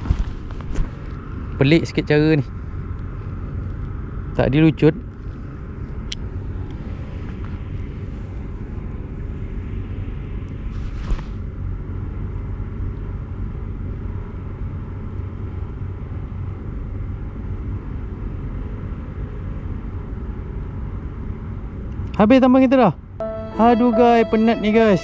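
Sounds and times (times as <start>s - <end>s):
wind rumbling on microphone: 0.0s - 1.6s.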